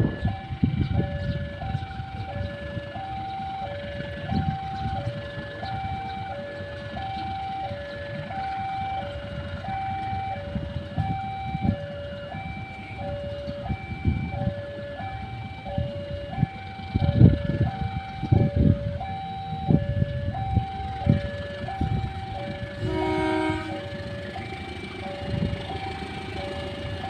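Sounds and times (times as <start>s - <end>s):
level crossing two-tone alarm: 0.0s - 27.0s.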